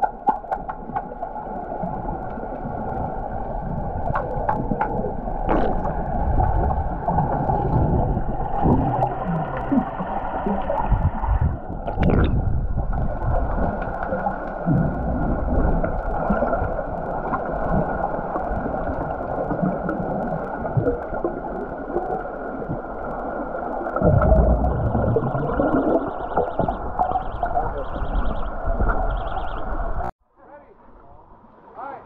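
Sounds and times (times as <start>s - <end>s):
underwater bubbling and churning: 0.0s - 30.1s
faint pulsing tone: 24.0s - 30.1s.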